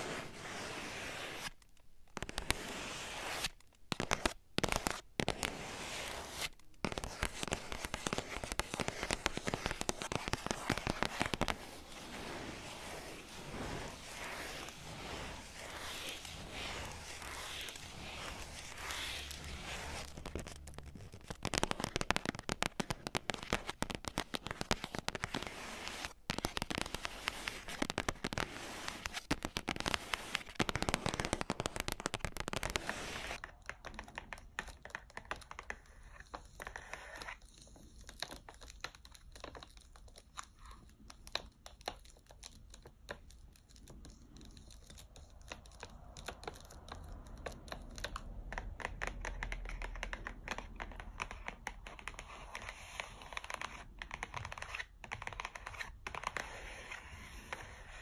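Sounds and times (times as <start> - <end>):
plastic wrapper crinkling: 15.8 - 33.4.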